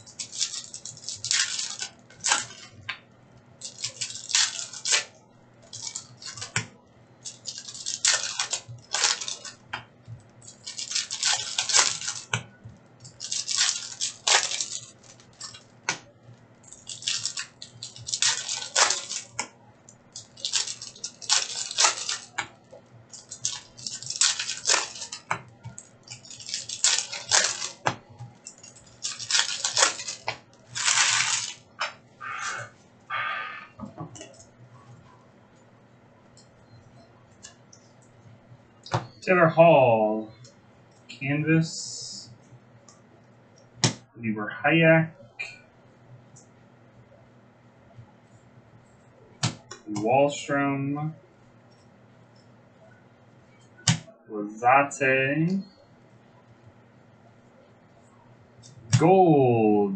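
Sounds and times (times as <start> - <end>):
foil wrappers torn and crinkled: 0.1 - 2.8, 3.6 - 6.6, 7.2 - 9.6, 10.4 - 12.4, 13.0 - 15.8, 16.6 - 19.5, 20.1 - 31.7.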